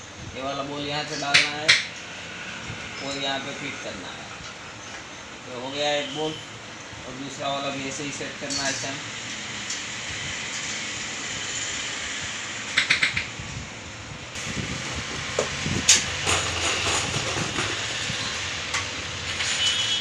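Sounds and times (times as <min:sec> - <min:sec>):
steady background hiss: 0:00.0 - 0:20.0
socket spanner clinking on metal: 0:15.9 - 0:19.8.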